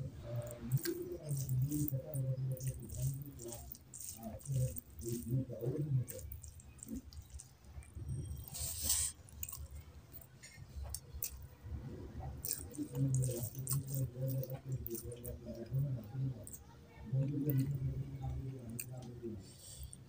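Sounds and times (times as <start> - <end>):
fingers squishing rice: 0.0 - 11.5, 12.3 - 16.6
wet chewing: 0.0 - 11.5, 12.2 - 20.0.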